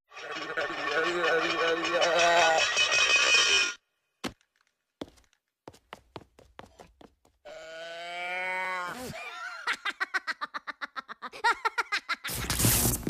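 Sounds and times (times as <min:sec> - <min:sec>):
cartoon giggling: 0:09.0 - 0:12.3.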